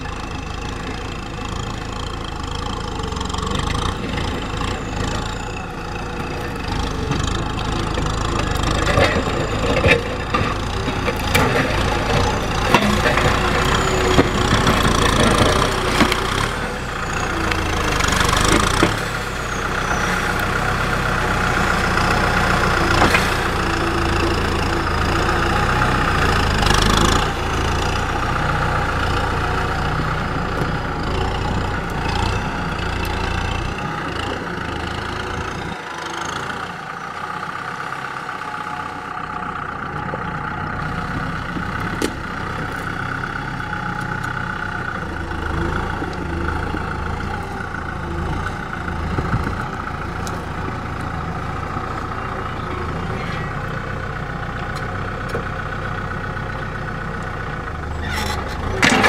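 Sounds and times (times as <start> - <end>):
tractor diesel engine running: 0.0 - 59.0
blade pushing soil and brush: 57.9 - 59.0.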